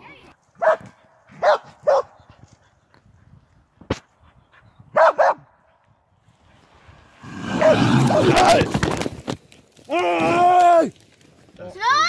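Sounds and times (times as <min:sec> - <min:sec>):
dog barking: 0:00.6 - 0:02.2, 0:04.9 - 0:05.5.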